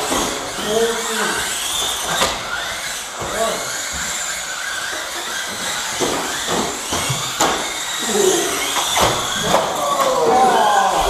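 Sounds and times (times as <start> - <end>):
small electric motors whining: 0.0 - 11.0.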